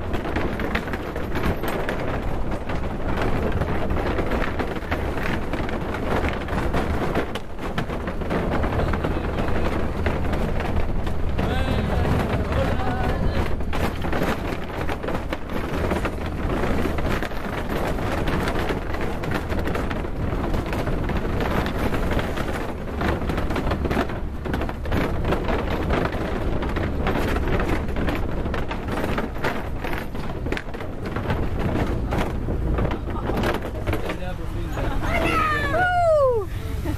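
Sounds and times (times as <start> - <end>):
wheels rattling over wooden boards: 0.0 - 36.9
small engine droning: 36.2 - 36.9.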